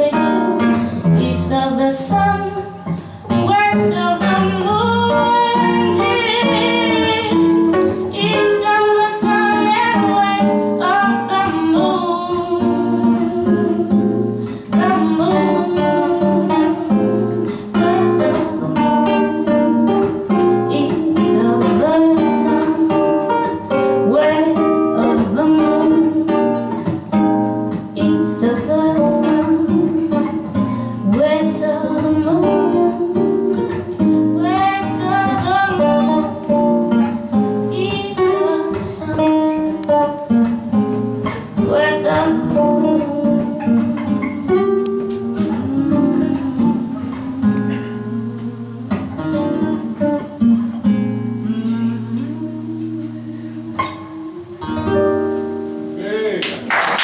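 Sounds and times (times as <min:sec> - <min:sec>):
woman singing jazz: 0:00.0 - 0:55.8
plucked guitar: 0:00.0 - 0:57.0.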